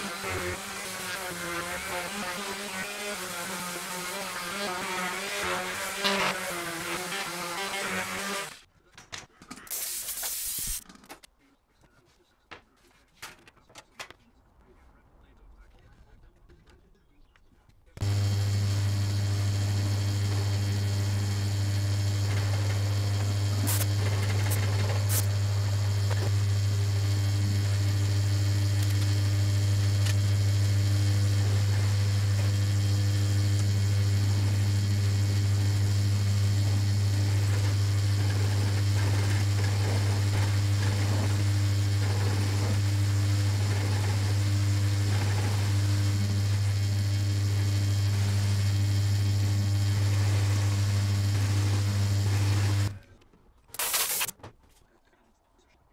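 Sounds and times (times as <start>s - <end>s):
drill press motor hum: 0.0s - 8.6s, 18.0s - 53.0s
router bit cutting wood: 0.0s - 8.6s, 18.0s - 53.0s.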